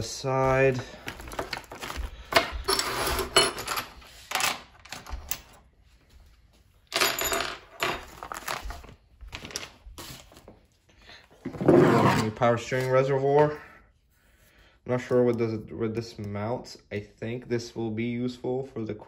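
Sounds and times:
plastic bags rustling: 0.3 - 4.1, 8.1 - 10.6.

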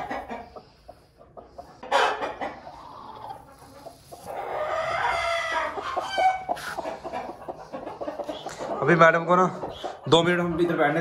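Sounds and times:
chicken squawk: 1.6 - 9.0
chicken drawn-out call: 1.8 - 8.7.

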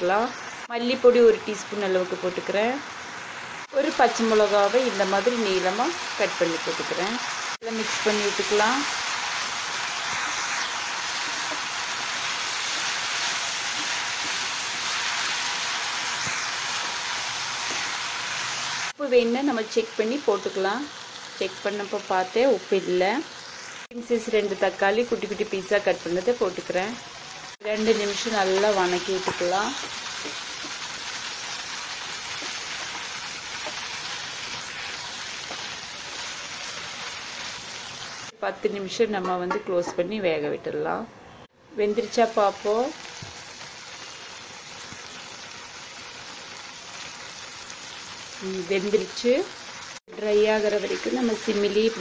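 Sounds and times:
food sizzling in hot oil: 0.0 - 38.4, 41.8 - 52.0
wooden spatula stirring in pan: 9.9 - 18.8.

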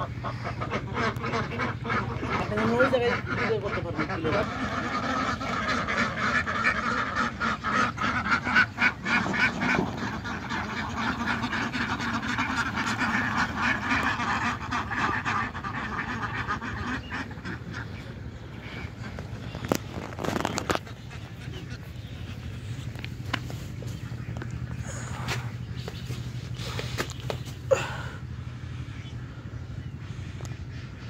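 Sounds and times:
flock of ducks quacking: 0.0 - 31.0.

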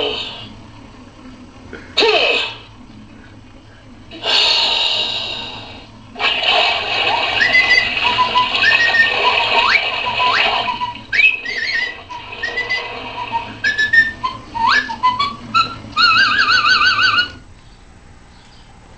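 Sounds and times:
steady hiss: 0.0 - 16.5
toy whistle slides: 6.3 - 17.4.

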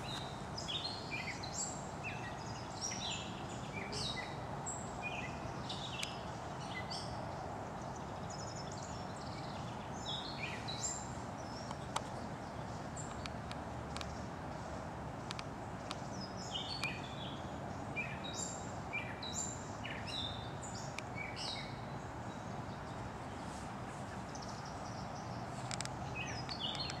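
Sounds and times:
songbird singing falling notes: 0.0 - 4.4, 15.2 - 17.4, 24.3 - 27.0
steady background noise: 0.0 - 27.0.

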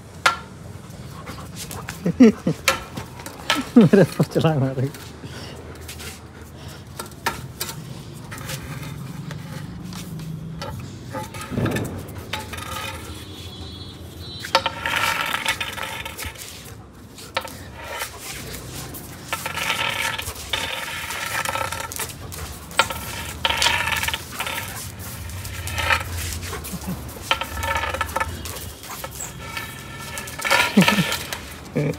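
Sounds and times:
metal pipe scraping concrete floor: 5.9 - 31.9
dog claws clicking: 14.8 - 31.9.

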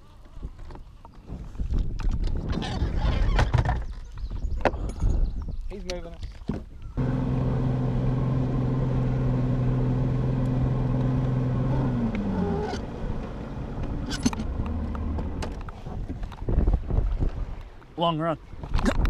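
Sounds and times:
outboard motor running: 7.0 - 15.6.

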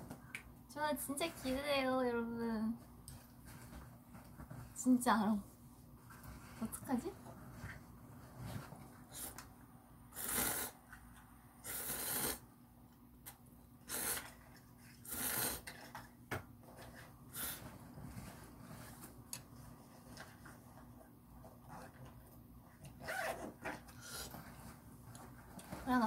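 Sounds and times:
slurping noodles: 10.2 - 10.8, 11.6 - 12.4, 13.8 - 15.9.

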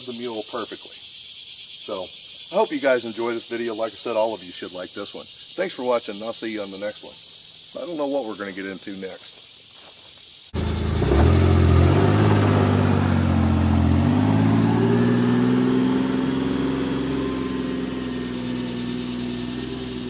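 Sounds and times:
utility vehicle engine pulling away: 10.6 - 20.0.

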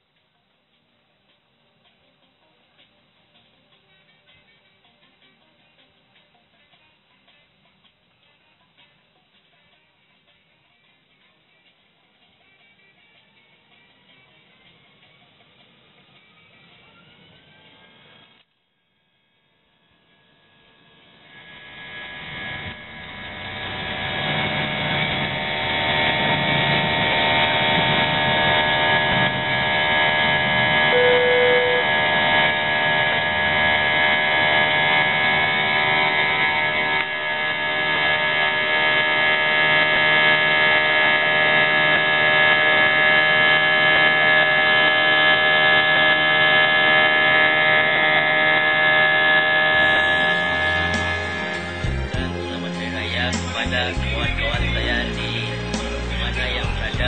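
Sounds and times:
jet engines whining in cabin: 21.4 - 52.0.

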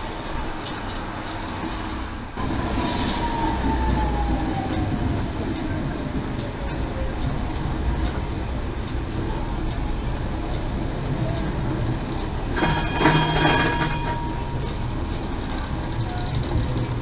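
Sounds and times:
tram running on rails: 0.0 - 17.0
tram warning bell ringing: 2.4 - 16.6.

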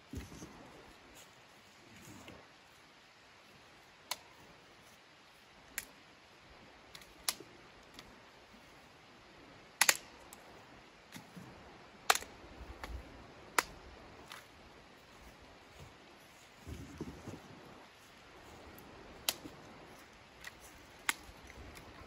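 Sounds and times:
dry sticks cracking: 4.0 - 4.6, 5.7 - 6.0, 6.9 - 8.1, 9.8 - 10.5, 12.1 - 14.5, 18.4 - 22.0.

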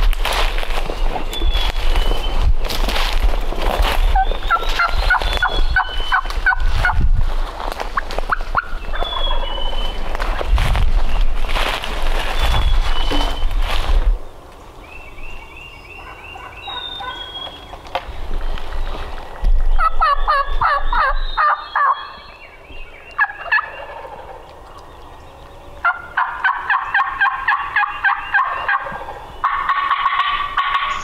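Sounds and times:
turkey gobbling: 4.1 - 7.0, 8.0 - 9.8, 16.0 - 17.5, 19.8 - 22.2, 23.2 - 24.5, 25.8 - 31.0.

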